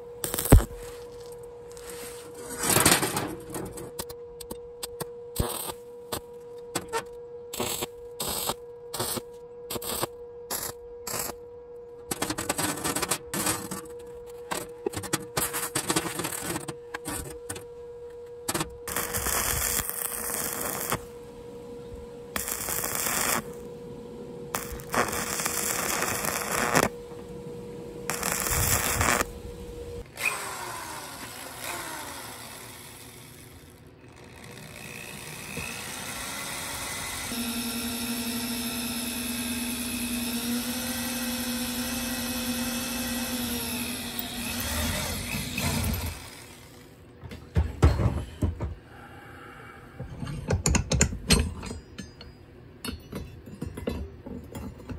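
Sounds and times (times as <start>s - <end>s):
welding arc crackling: 0.0s - 0.8s, 5.4s - 6.3s, 7.5s - 11.4s, 18.5s - 21.2s, 22.3s - 23.7s, 24.5s - 27.0s, 28.1s - 30.1s
steady hum: 0.0s - 54.9s.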